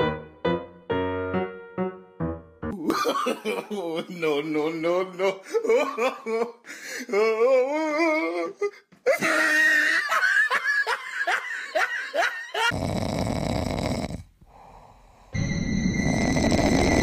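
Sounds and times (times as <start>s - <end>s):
person laughing: 2.7s - 12.7s.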